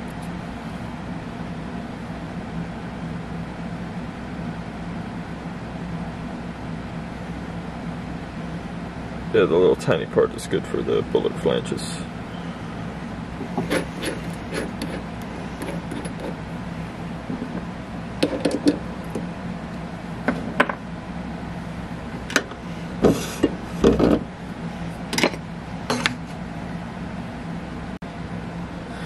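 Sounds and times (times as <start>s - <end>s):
steady low hum: 0.0s - 29.0s
metal tools clicking and knocking: 18.2s - 18.8s, 25.2s - 26.2s.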